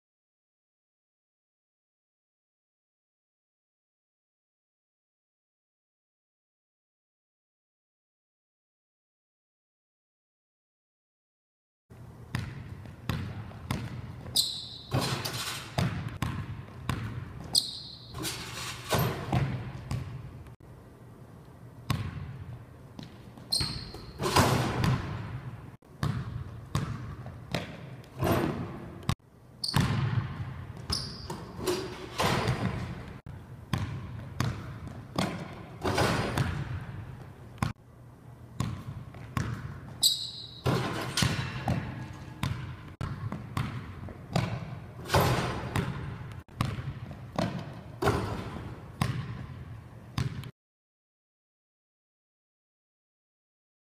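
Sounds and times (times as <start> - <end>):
basketball bouncing on hardwood floor: 12.3 - 15.2, 15.8 - 18.2, 19.0 - 20.2, 21.9 - 22.4, 23.0 - 25.4, 26.0 - 37.7, 38.6 - 40.0, 40.6 - 49.6, 50.2 - 50.5
basketball slamming on rim: 14.9 - 17.2, 18.1 - 20.1, 23.6 - 25.4, 26.0 - 28.9, 29.8 - 30.4, 31.3 - 33.0, 33.8 - 36.9, 40.6 - 42.7, 43.5 - 49.5.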